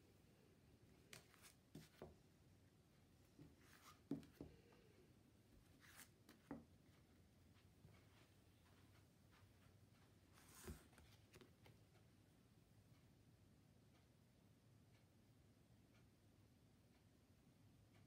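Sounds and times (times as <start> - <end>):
cards sliding swishes: 1.1 - 2.0, 5.8 - 6.5.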